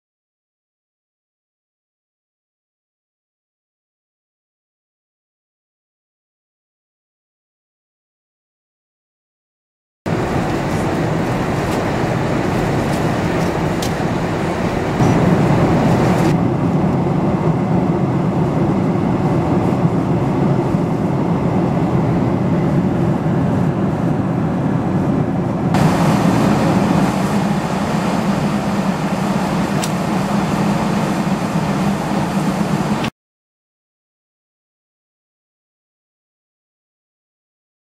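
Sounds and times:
airliner cabin engine and airflow noise: 0:10.1 - 0:33.1.

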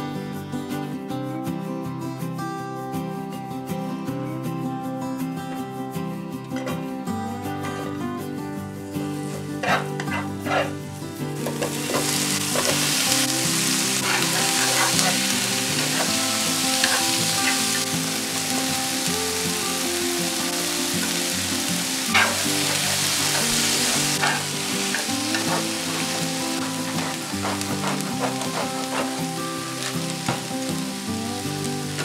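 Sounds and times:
vegetables sizzling in a pan: 0:09.1 - 0:32.0.

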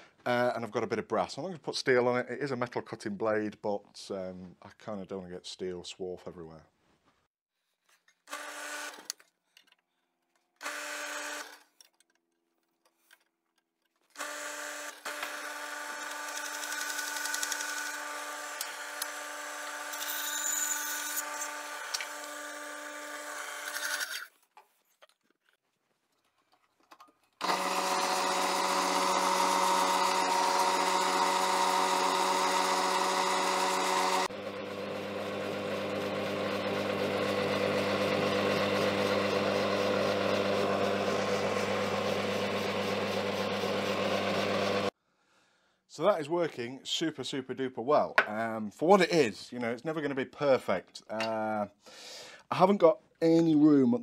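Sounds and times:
bandsaw blade cutting: 0:14.2 - 0:24.3, 0:27.4 - 0:34.3
bandsaw motor hum: 0:27.4 - 0:44.9.

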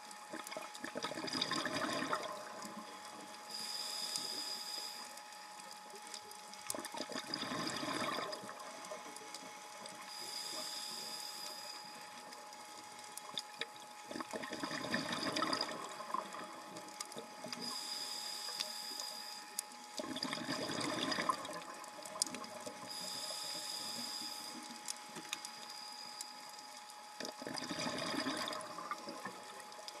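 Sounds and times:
faint steady tone: 0:00.0 - 0:30.0
exhaled bubbles rushing: 0:00.8 - 0:02.7, 0:06.8 - 0:08.7, 0:14.1 - 0:16.6, 0:20.0 - 0:21.9, 0:27.3 - 0:29.7.

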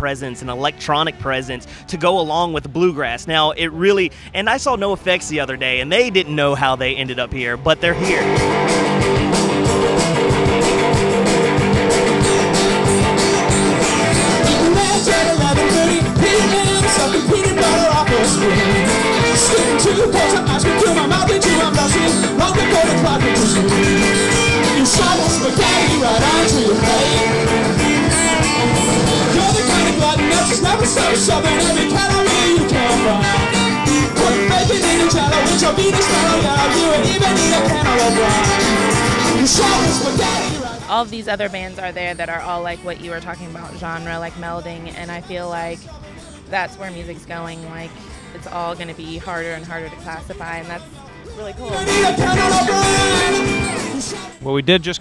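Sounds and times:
rock band playing: 0:03.8 - 0:42.6, 0:43.8 - 0:54.9
person singing: 0:14.1 - 0:41.0, 0:49.7 - 0:54.8.

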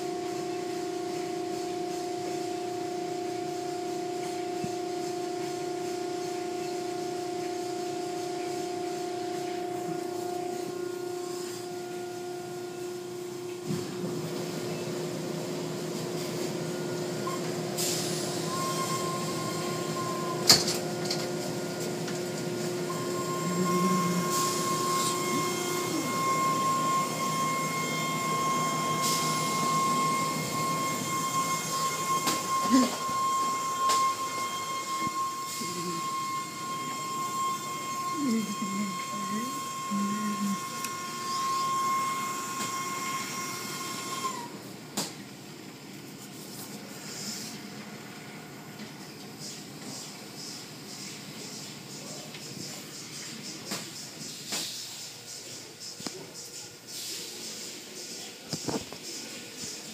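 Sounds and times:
electric motors humming: 0:00.0 - 0:54.2
spinning brushes and water spray hiss: 0:49.4 - 0:59.9.

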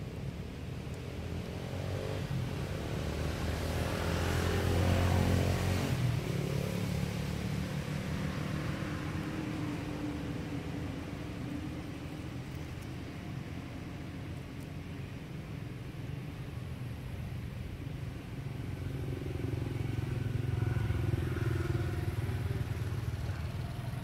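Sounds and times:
motor vehicle passing by: 0:00.6 - 0:14.3, 0:18.2 - 0:24.0.

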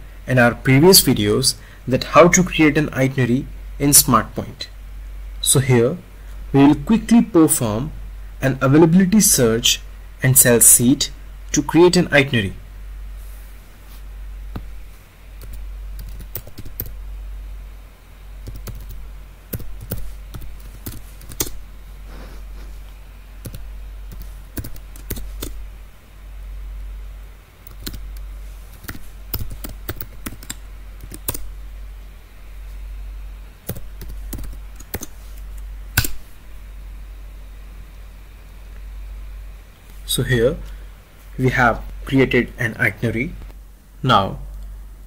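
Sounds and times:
keyboard typing: 0:15.4 - 0:17.0, 0:18.4 - 0:21.6, 0:23.4 - 0:25.6, 0:27.6 - 0:31.5, 0:33.6 - 0:35.2.

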